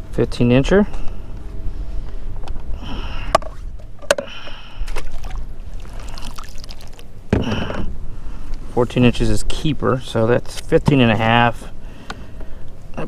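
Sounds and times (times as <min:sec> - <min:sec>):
water splashing and trickling: 0:04.9 - 0:07.2.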